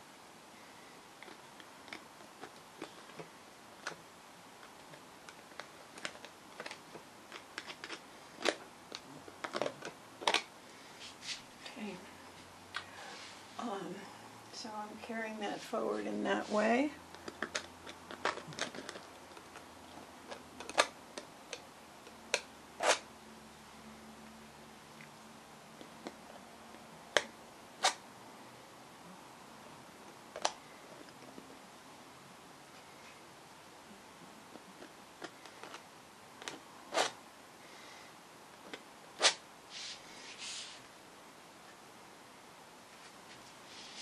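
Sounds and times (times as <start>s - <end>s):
brief hiss: 39.2s - 40.8s.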